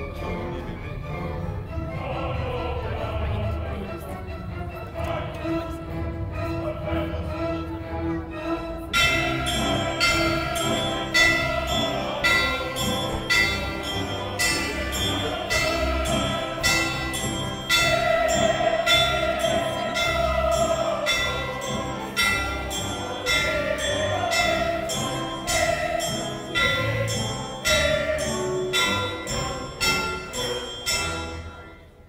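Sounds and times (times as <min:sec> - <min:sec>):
sustained melodic tones: 0:00.0 - 0:32.0
ringing percussion strikes: 0:09.0 - 0:32.0.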